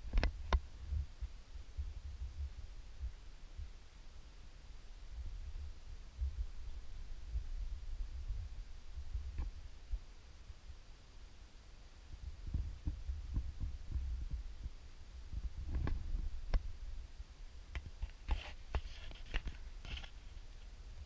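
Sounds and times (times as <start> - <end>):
soft low handling thumps: 0.0 - 3.8, 5.2 - 10.1, 12.2 - 16.9
light rustling: 17.8 - 20.8.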